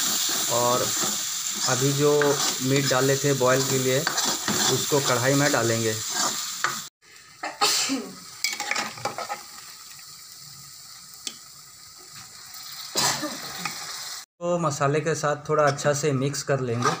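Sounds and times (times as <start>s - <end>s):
metal ladle scraping a pan: 0.0s - 6.9s, 8.4s - 9.6s, 16.7s - 17.0s
food sizzling in a pan: 0.0s - 14.3s.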